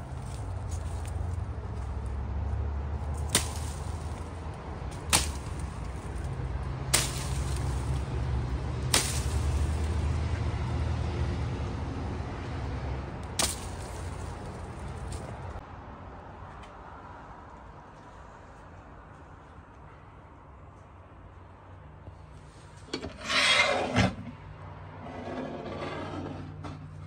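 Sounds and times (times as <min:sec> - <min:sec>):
axe chopping shrub stems: 0:03.0 - 0:10.3, 0:13.2 - 0:15.5.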